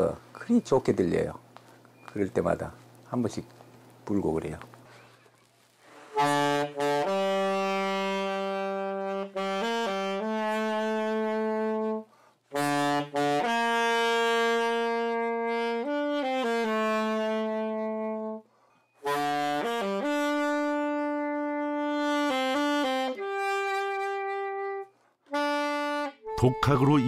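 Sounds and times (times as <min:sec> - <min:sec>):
saxophone playing slow melody: 0:06.1 - 0:27.0.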